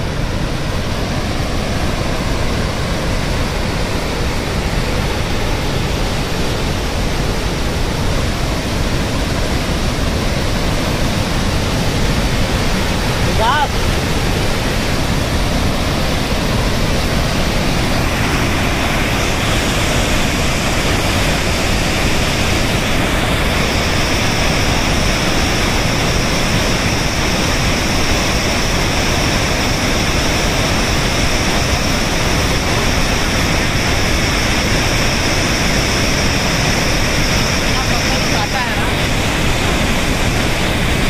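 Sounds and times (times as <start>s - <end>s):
river water rushing over rapids: 0.0s - 41.0s
high hiss: 12.0s - 41.0s.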